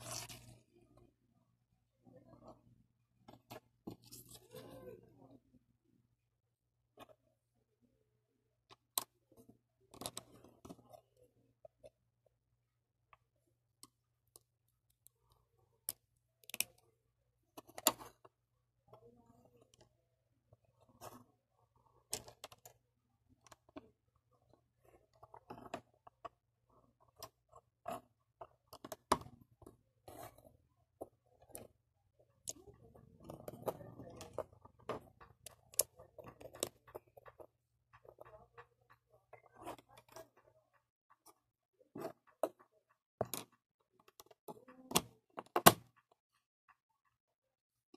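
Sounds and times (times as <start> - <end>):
pieces rustling: 0.0 - 0.7.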